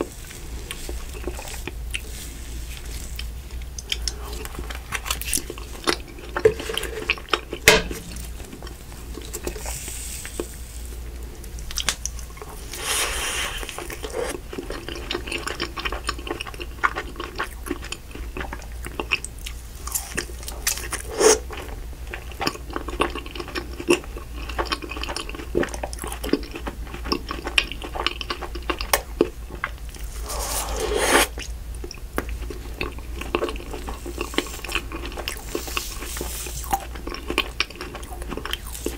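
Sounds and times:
mouth chewing and lip smacking: 0:02.8 - 0:38.9
sucking sounds: 0:12.6 - 0:14.4, 0:21.0 - 0:21.5, 0:30.0 - 0:31.4.

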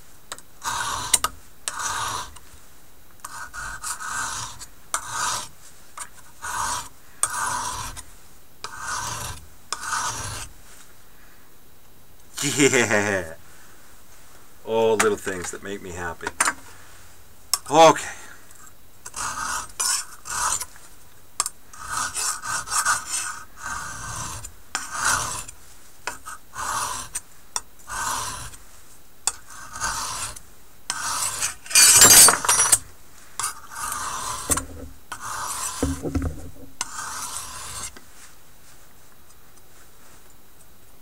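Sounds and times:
knife scraping on sharpening stone: 0:06.4 - 0:08.0, 0:08.7 - 0:10.4, 0:19.1 - 0:20.7, 0:21.8 - 0:25.4, 0:27.9 - 0:28.6, 0:29.3 - 0:32.8, 0:33.4 - 0:36.0, 0:36.8 - 0:37.9.

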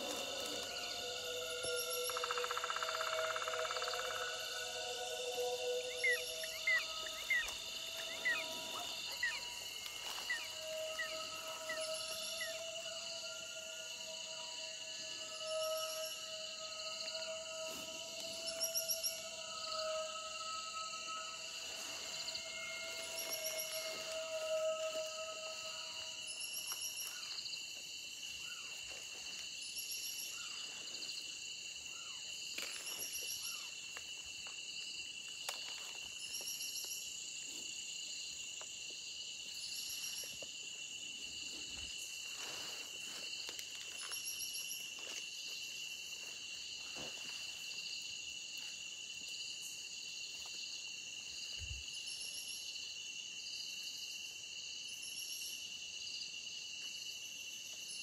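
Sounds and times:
insect pulsed calls: 0:00.0 - 0:34.3, 0:39.4 - 0:47.8
insect high trill: 0:00.0 - 0:38.4, 0:39.1 - 0:56.1.

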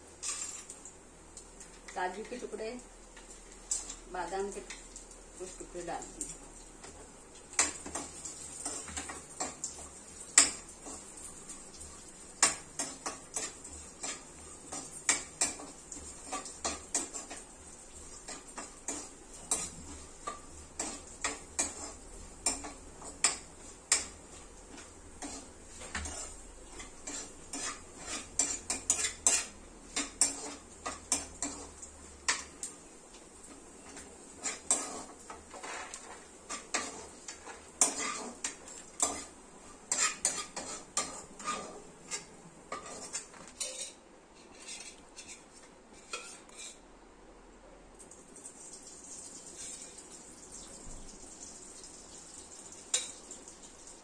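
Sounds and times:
nuts roasting in oil: 0:00.0 - 0:44.0, 0:48.1 - 0:54.0
steel spatula scraping a pan: 0:00.2 - 0:00.7, 0:12.4 - 0:32.5, 0:33.8 - 0:46.8.

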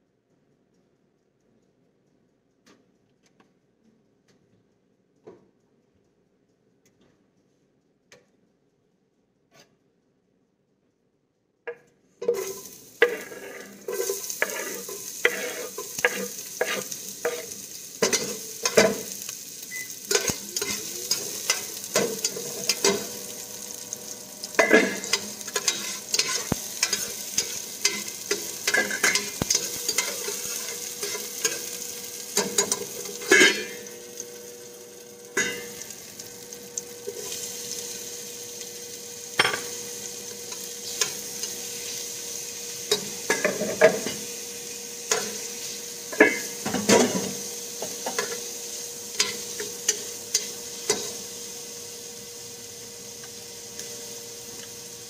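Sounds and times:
metal spatula scraping pot: 0:12.2 - 0:19.1, 0:24.5 - 0:31.8, 0:32.4 - 0:33.9
onion sizzling in hot oil: 0:12.2 - 0:55.0.

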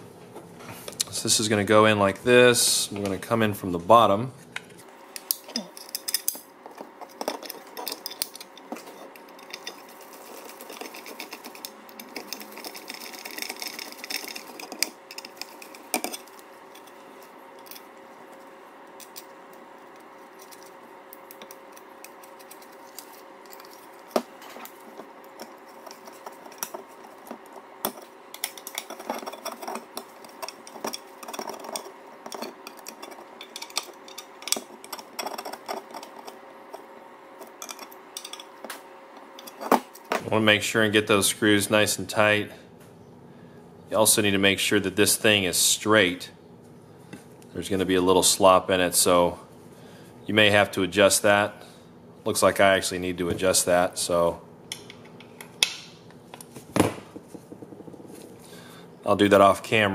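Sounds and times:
screws and nuts clinking: 0:07.0 - 0:18.0, 0:19.9 - 0:38.6.

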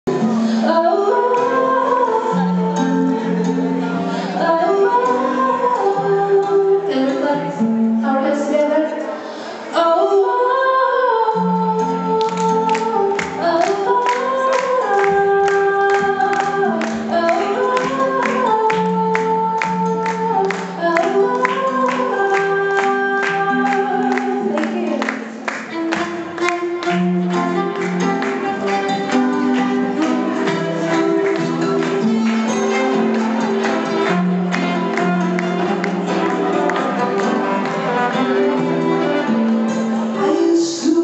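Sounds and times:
woman singing: 0:00.1 - 0:41.0.

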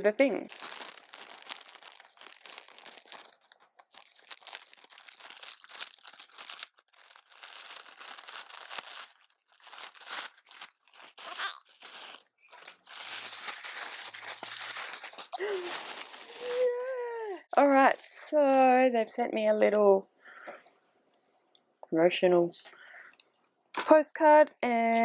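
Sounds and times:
package packaging crinkling and tearing: 0:00.0 - 0:16.9.

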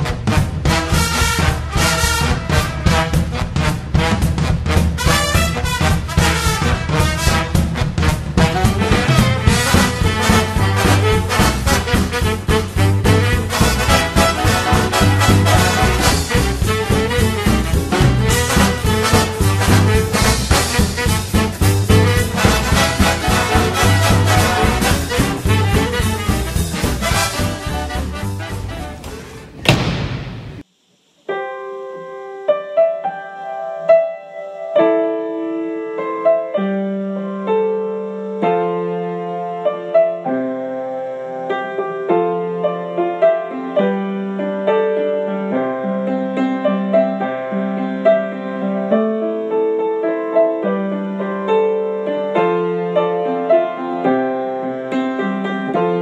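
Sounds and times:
solo piano music: 0:31.2 - 0:56.0.

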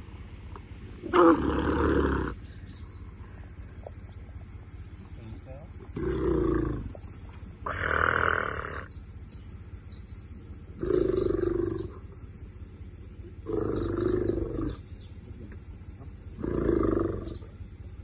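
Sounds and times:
high bird chirps: 0:02.4 - 0:04.3, 0:08.4 - 0:12.5
elephant calf calling: 0:07.6 - 0:09.0.

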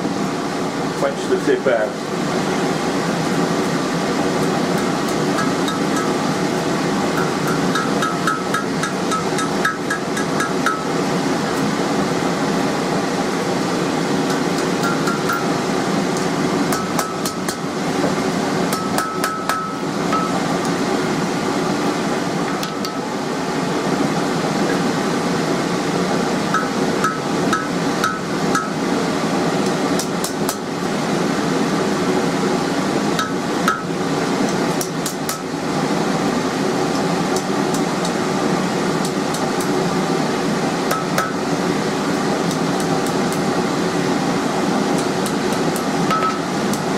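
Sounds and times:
steady background drone: 0:00.0 - 0:46.9
hammer striking hot steel on anvil: 0:04.7 - 0:11.0, 0:14.2 - 0:15.6, 0:16.2 - 0:17.7, 0:18.6 - 0:20.8, 0:26.5 - 0:28.8, 0:29.6 - 0:30.7, 0:33.2 - 0:35.5, 0:40.9 - 0:41.5, 0:45.0 - 0:46.9
metallic ring: 0:18.8 - 0:20.5.

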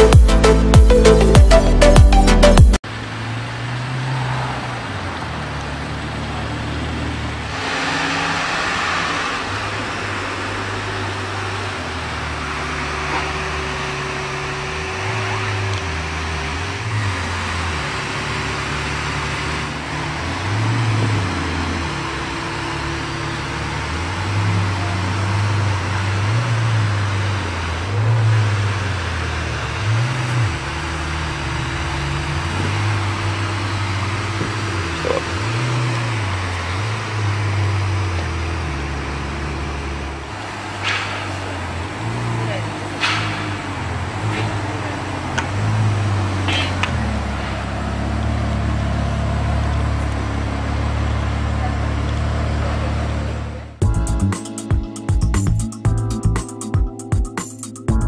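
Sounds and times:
car engine running at low revs: 0:08.4 - 0:54.3.

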